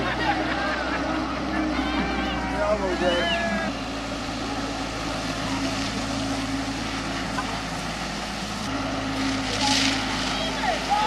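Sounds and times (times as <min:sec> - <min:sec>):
churning water and spray hiss: 0:00.0 - 0:11.0
diesel engine running: 0:00.0 - 0:11.0.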